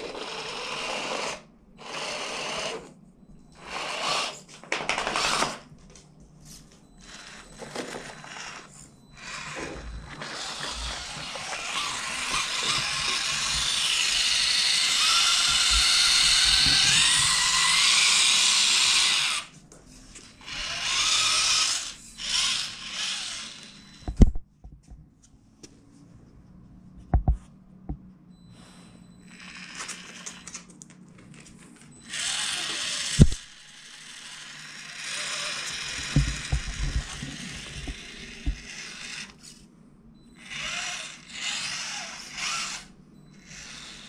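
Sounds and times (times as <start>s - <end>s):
toy car motor whining: 0.0s - 5.6s, 7.0s - 19.6s, 20.2s - 24.2s, 29.2s - 30.7s, 32.0s - 39.6s, 40.3s - 44.0s.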